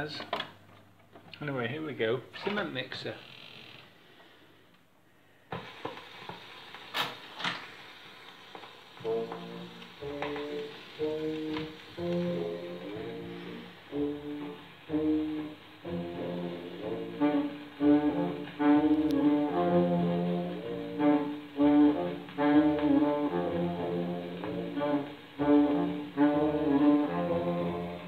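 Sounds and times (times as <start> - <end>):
band music with brass on record: 9.0 - 28.0.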